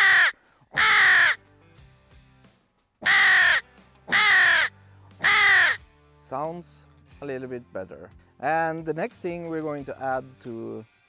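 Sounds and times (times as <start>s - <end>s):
crow call caws: 0.0s - 1.5s, 3.0s - 5.9s.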